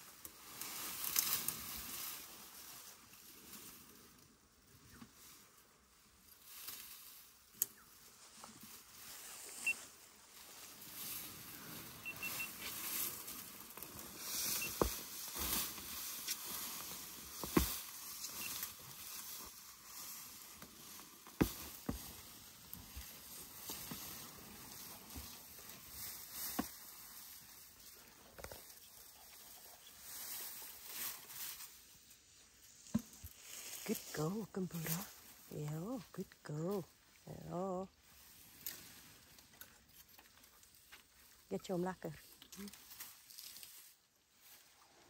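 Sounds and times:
elephants tearing dry grass: 0:00.0 - 0:04.2, 0:08.5 - 0:28.8.

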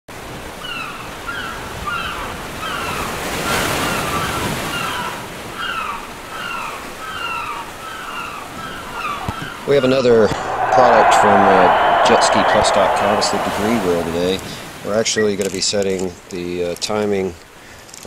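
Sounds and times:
rushing noise: 0:10.1 - 0:14.8.

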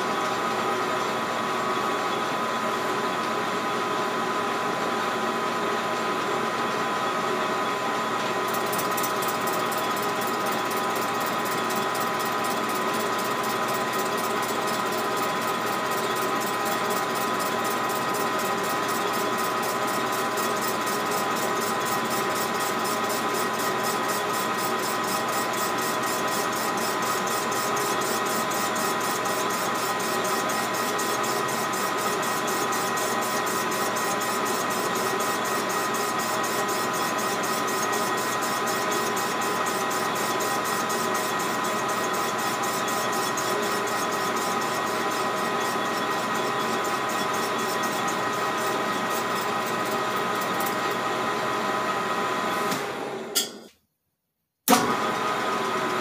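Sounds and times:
metal lathe whine: 0:06.4 - 0:51.0.

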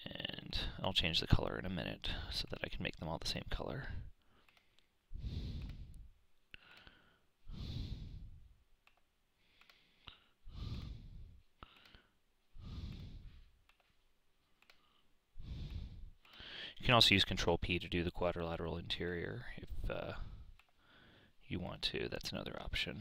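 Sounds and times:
faint mouse clicks: 0:02.4 - 0:03.0, 0:04.4 - 0:04.9, 0:05.5 - 0:07.0, 0:08.8 - 0:10.2, 0:11.6 - 0:12.0, 0:12.9 - 0:14.9
person breathing: 0:03.9 - 0:08.6, 0:09.3 - 0:16.9, 0:20.1 - 0:21.4.

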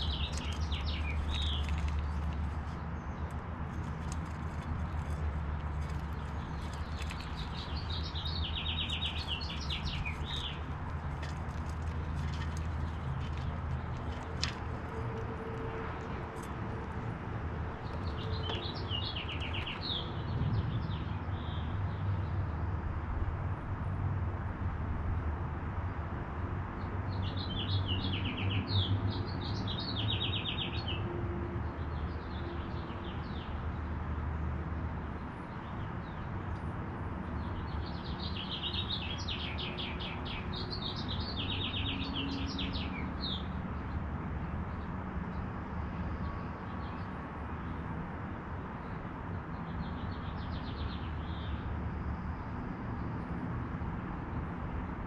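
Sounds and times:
songbird singing: 0:00.0 - 0:21.7, 0:37.4 - 0:44.0, 0:48.8 - 0:53.4.

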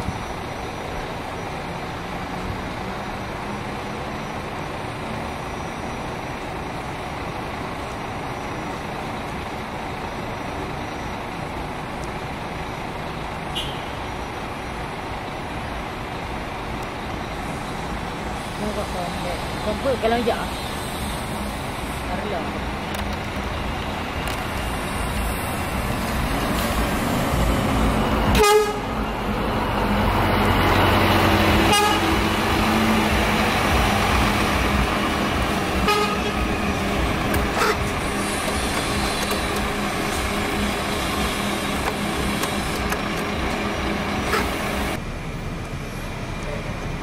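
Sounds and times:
bus engine driving past: 0:00.0 - 0:47.0
short horn toots: 0:35.8 - 0:36.4.

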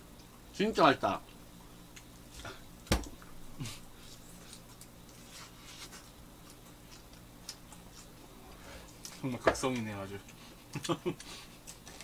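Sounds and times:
soft chewing: 0:01.6 - 0:12.0.

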